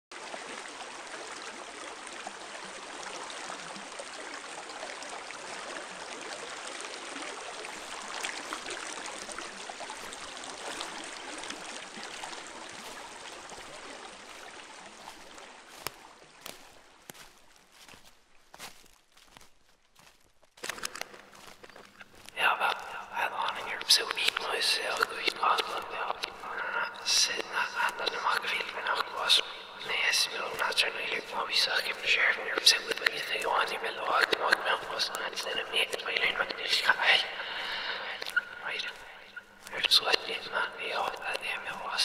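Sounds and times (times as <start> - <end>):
stream running over stones: 0.1 - 42.0.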